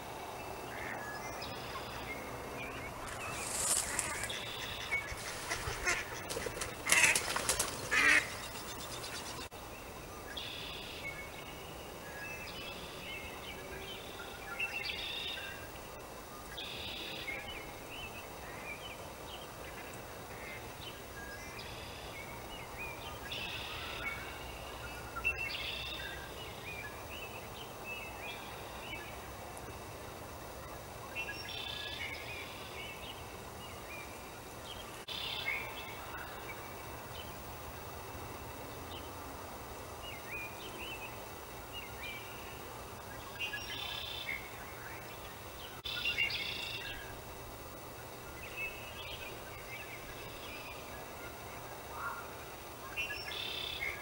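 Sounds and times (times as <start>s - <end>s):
waterfowl calling: 3.0s - 9.5s.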